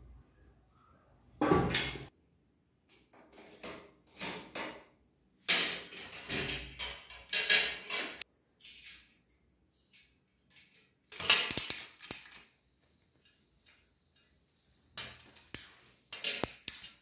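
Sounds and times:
metal bicycle parts clinking: 0:05.5 - 0:17.0.

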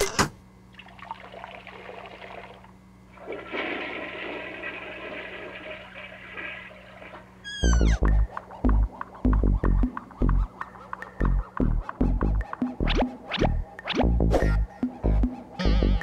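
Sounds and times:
toilet flushing: 0:00.8 - 0:07.4
music: 0:07.6 - 0:16.0.

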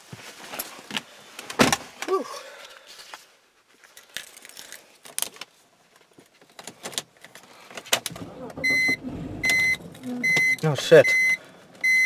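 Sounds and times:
car engine cranking: 0:07.9 - 0:12.0
dashboard warning chime beeping: 0:08.4 - 0:12.0.

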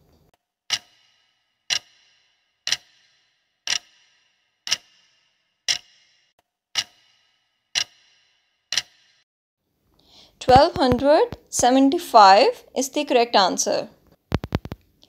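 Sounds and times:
clock ticking with ringing tail: 0:00.7 - 0:09.2.

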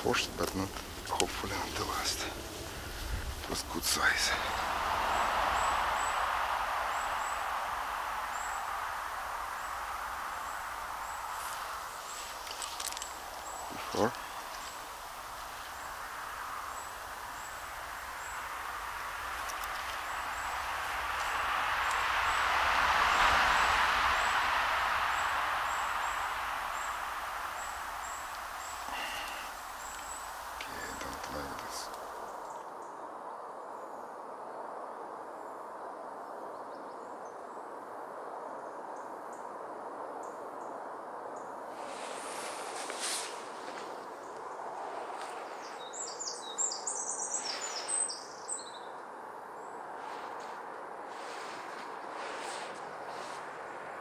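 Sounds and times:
outdoor background hiss: 0:00.0 - 0:54.0
high chirps: 0:02.8 - 0:32.4
vehicle approaching: 0:04.3 - 0:13.8.

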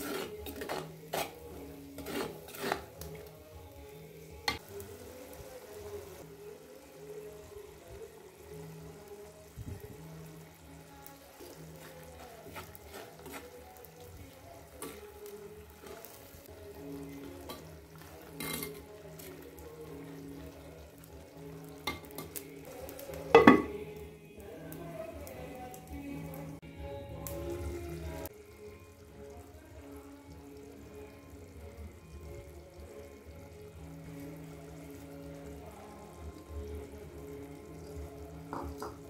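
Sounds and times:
metal spoon scraping pot: 0:00.0 - 0:03.3, 0:12.4 - 0:13.6, 0:17.3 - 0:19.4
curry sizzling in pot: 0:00.0 - 0:39.0
clay lid clattering: 0:23.4 - 0:23.8.

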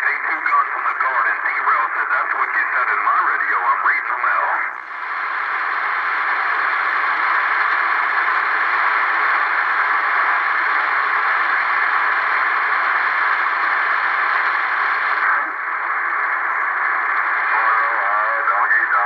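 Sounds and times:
voice through radio: 0:00.0 - 0:04.8, 0:13.9 - 0:19.0
radio static hiss: 0:00.0 - 0:19.0.

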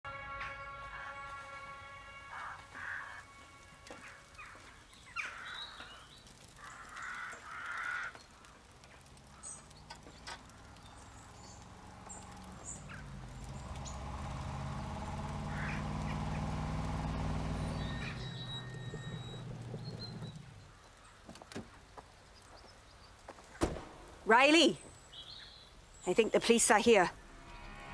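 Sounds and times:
vehicle engine approaching: 0:00.0 - 0:07.3, 0:08.1 - 0:21.2, 0:26.8 - 0:27.9
crows cawing: 0:02.1 - 0:13.1, 0:15.3 - 0:18.5.

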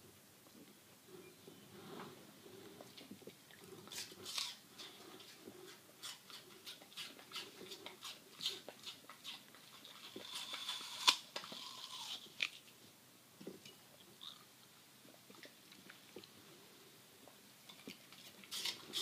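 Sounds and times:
dog chewing crunches: 0:02.7 - 0:12.7, 0:17.7 - 0:19.0.

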